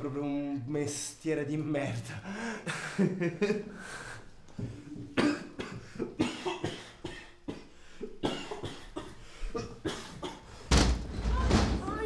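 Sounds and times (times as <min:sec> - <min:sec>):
man coughing: 0:05.1 - 0:10.6.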